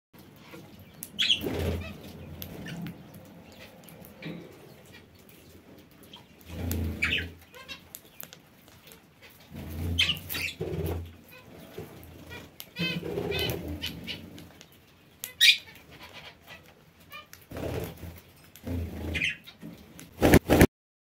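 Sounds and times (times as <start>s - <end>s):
parakeets chattering chirps: 0.3s - 19.6s
parakeet wings fluttering: 9.5s - 14.4s, 17.5s - 19.3s, 20.0s - 20.7s.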